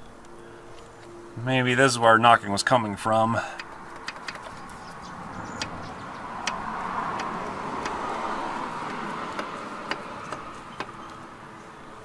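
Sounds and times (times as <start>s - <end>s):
faint metal clicks: 3.5s - 5.0s, 5.6s - 11.3s.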